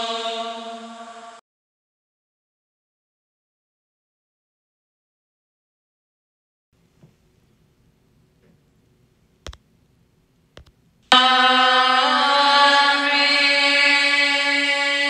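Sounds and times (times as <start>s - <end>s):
chant-like singing: 0.0s - 1.4s, 11.1s - 15.0s
short clicks: 10.6s - 10.8s.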